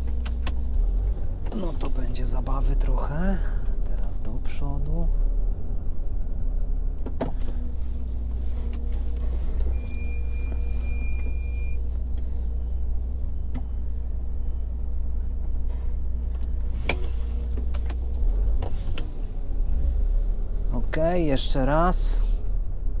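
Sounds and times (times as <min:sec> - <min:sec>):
truck engine running: 0:00.0 - 0:23.0
high beep: 0:09.8 - 0:11.8.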